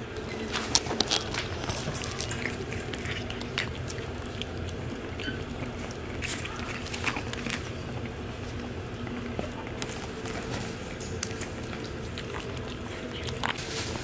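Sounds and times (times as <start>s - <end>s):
puppies crunching dry kibble: 0.0s - 14.0s.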